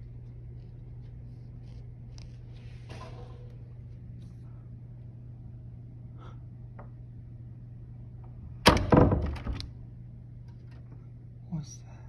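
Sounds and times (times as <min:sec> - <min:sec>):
loud thunk: 0:08.6 - 0:09.6.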